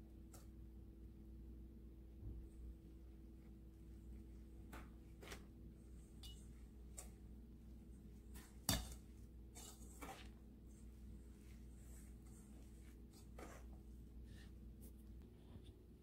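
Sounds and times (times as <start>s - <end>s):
whisk scraping metal bowl: 7.9s - 14.6s.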